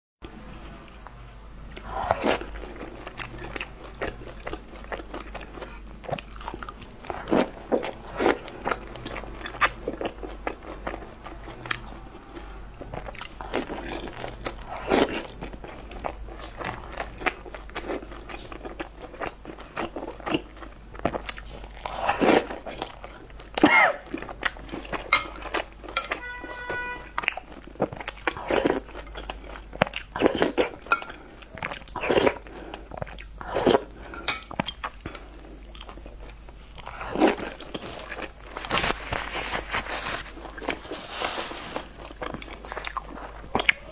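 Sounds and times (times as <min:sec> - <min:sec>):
crunching fried food: 0:00.9 - 0:43.9
wet chewing: 0:01.0 - 0:43.9.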